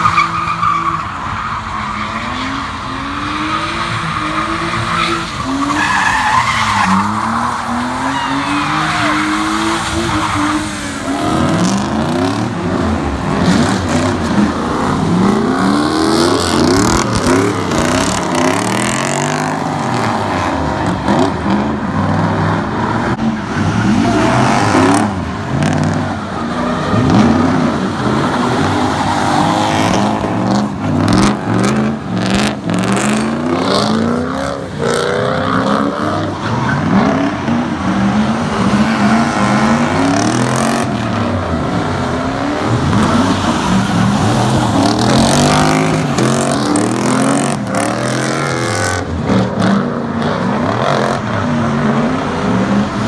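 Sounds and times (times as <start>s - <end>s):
car engines revving hard: 0.0s - 53.0s
tyres skidding on wet pavement: 0.0s - 53.0s.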